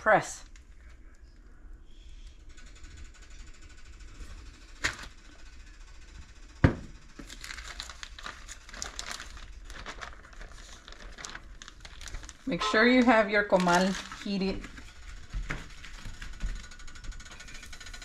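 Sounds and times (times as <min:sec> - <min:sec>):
plastic bag crinkling: 0:07.2 - 0:16.4.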